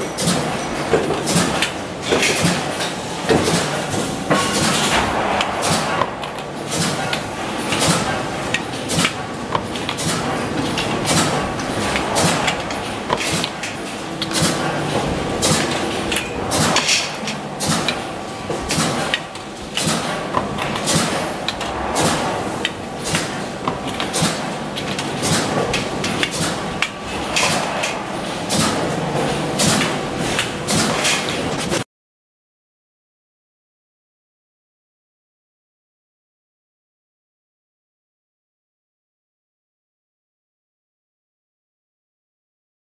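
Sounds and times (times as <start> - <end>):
workshop hum: 0.0 - 31.9.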